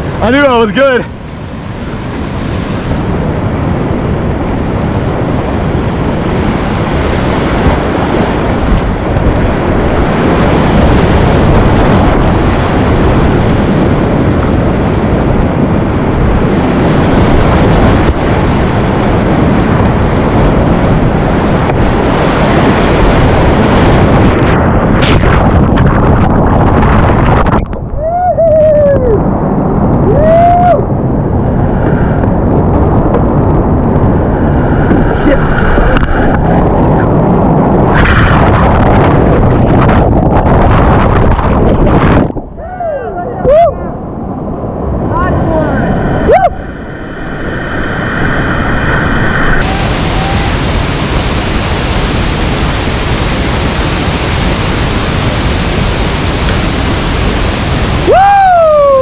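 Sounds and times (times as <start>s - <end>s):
whitewater rapids rushing: 45.4s - 59.0s.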